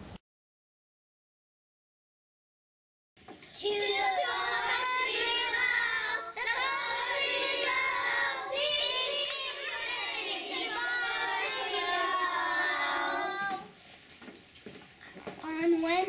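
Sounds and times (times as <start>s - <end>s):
children singing in unison: 3.5s - 13.8s.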